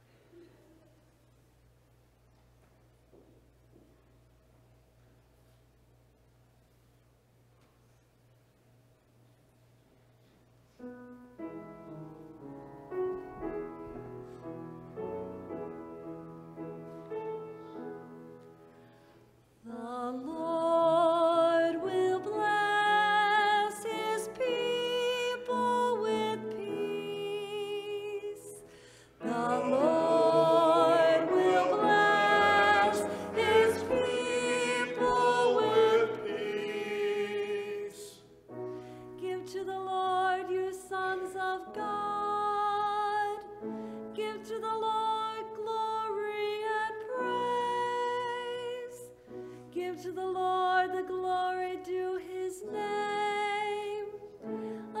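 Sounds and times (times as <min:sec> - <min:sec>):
piano: 0:10.2 - 0:55.0
woman singing with vibrato: 0:19.7 - 0:28.6, 0:29.2 - 0:38.2.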